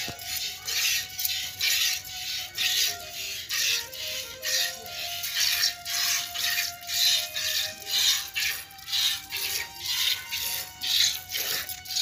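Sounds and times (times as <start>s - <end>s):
faint melody: 0.0s - 12.0s
rhythmic hissing strokes: 0.0s - 12.0s.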